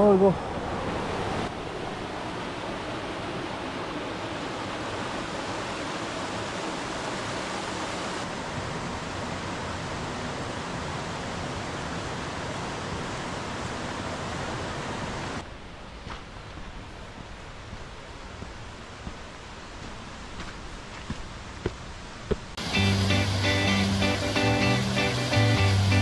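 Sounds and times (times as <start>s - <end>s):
mountain stream rushing: 0.0s - 26.0s.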